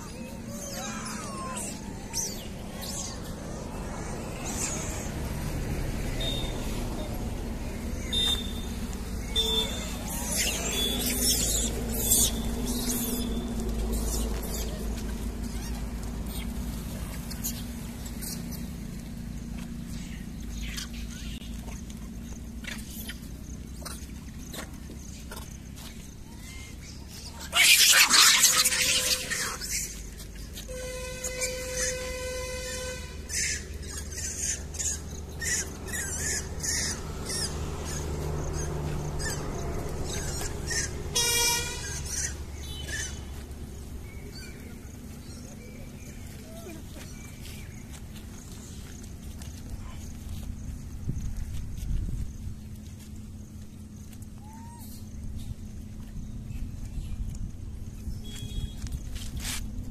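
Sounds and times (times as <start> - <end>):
steady low rumble: 0.0 - 27.5, 33.2 - 59.9
monkeys squeaking: 0.0 - 50.5, 53.8 - 55.1
low background hum: 0.0 - 59.9
animal squeaks and chirps: 8.0 - 16.5, 26.3 - 30.2, 31.2 - 43.4
scuffling: 41.8 - 59.9.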